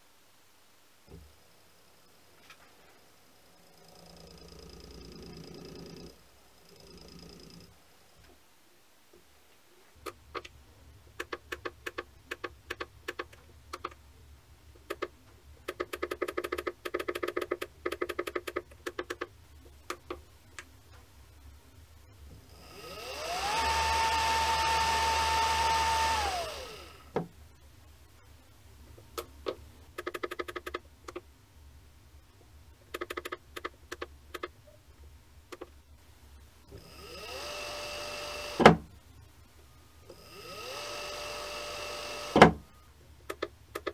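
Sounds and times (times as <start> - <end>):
servo motor whine: 22.6 - 27.0, 36.7 - 38.8, 40.1 - 42.6
controller keypad clicks: 30.0 - 31.2.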